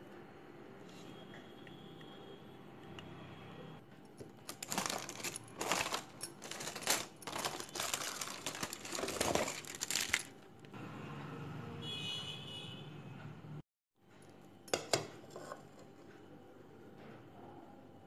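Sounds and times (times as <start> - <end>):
aluminium foil crinkling: 4.4 - 10.5.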